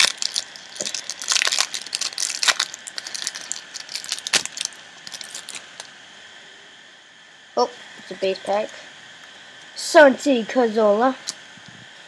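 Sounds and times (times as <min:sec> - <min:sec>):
foil wrapper tearing and crinkling: 0:00.0 - 0:05.9.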